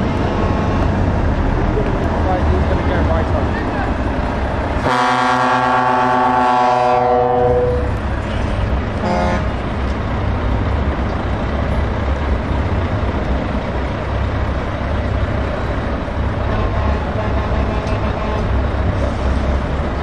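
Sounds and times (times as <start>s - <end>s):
diesel truck engines rumbling: 0.0s - 20.0s
truck air horn: 4.8s - 7.9s, 9.0s - 9.5s, 16.5s - 18.5s.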